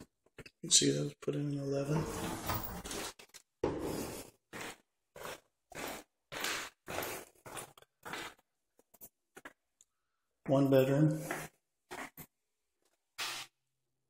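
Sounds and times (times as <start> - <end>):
footsteps scuffing on tile floor: 2.0 - 9.7, 10.5 - 13.6.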